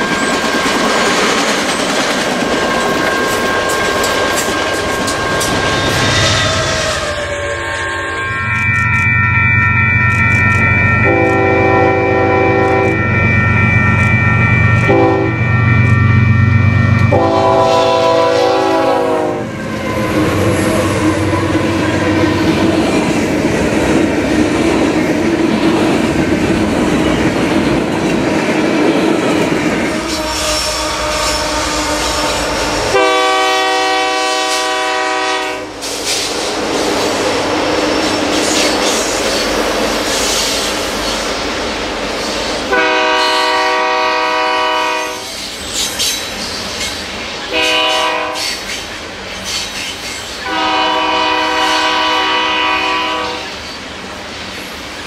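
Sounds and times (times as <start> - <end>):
freight cars rumbling on rails: 0.0 - 55.0
locomotive air horn blasts: 11.0 - 13.2, 14.8 - 15.5, 17.0 - 22.4, 29.9 - 35.8, 42.7 - 45.2, 47.5 - 48.6, 50.4 - 53.5.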